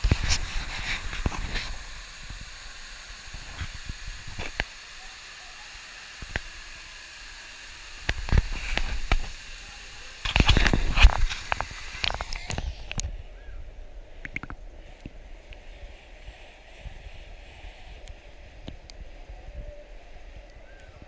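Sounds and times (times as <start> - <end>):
waterfall rushing hiss: 0.0 - 21.0
clicks and knocks on camera: 10.2 - 13.1, 14.2 - 14.6.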